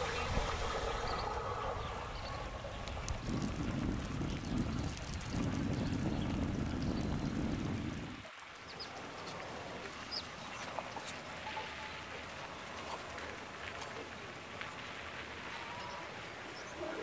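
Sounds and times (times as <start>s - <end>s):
low rumble: 0.0s - 8.3s
broth simmering with crackling hiss: 0.0s - 17.0s.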